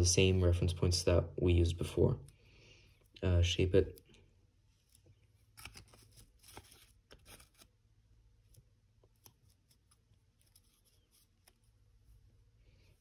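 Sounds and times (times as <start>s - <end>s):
paper crinkling and crackling: 4.8s - 7.8s, 8.4s - 12.2s.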